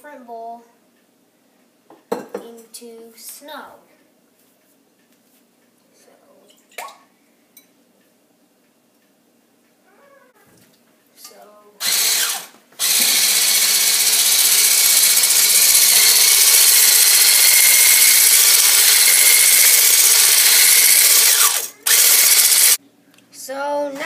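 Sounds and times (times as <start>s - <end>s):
electric hand blender whisking: 11.8s - 22.8s.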